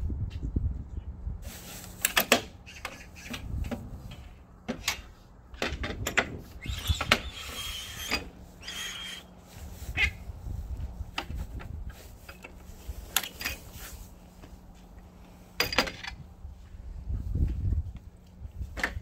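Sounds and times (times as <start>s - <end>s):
fence scraping along rails: 6.2s - 16.2s.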